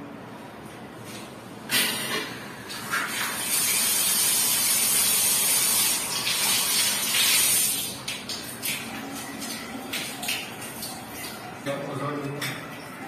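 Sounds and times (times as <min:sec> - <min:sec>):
water splashing on tiled floor: 0:02.7 - 0:11.7.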